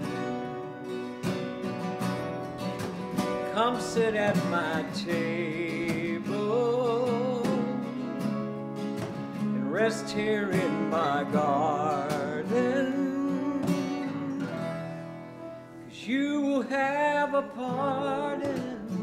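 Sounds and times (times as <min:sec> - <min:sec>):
acoustic guitars: 0:00.0 - 0:19.0
piano: 0:00.0 - 0:19.0
person singing long notes: 0:09.6 - 0:14.8, 0:15.9 - 0:19.0.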